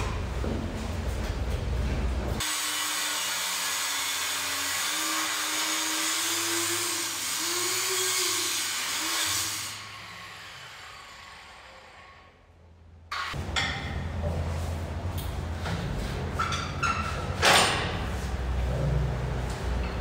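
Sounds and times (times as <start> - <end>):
angle grinder cutting metal pipe: 2.4 - 12.3.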